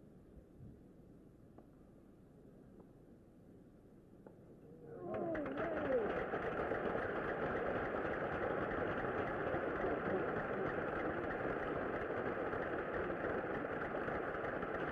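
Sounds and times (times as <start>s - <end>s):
spectators applauding: 5.0s - 14.9s.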